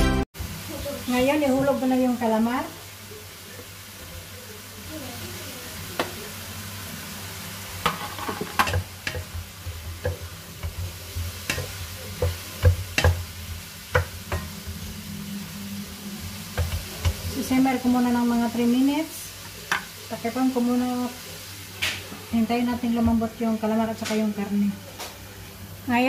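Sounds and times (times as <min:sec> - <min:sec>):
food sizzling in a wok: 0:00.0 - 0:26.0
spatula clacking against a pan: 0:07.8 - 0:14.8, 0:16.5 - 0:17.4.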